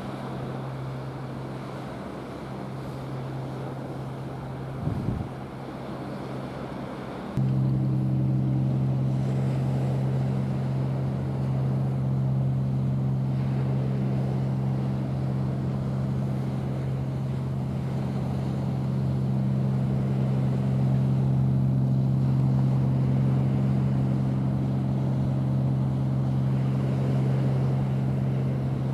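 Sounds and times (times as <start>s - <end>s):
engine hum: 0.0s - 28.9s.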